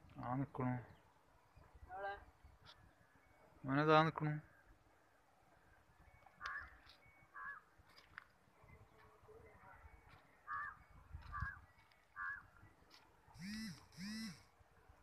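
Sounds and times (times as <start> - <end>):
crow cawing faintly: 6.4 - 7.8, 10.4 - 12.6.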